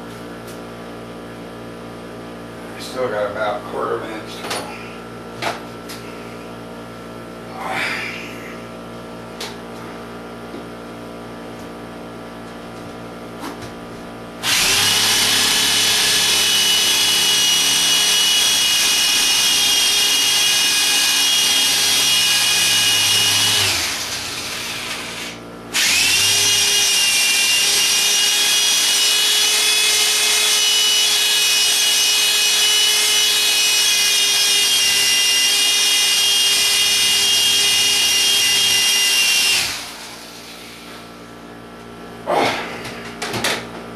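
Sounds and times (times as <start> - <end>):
electric drill boring into concrete: 14.4 - 40.8.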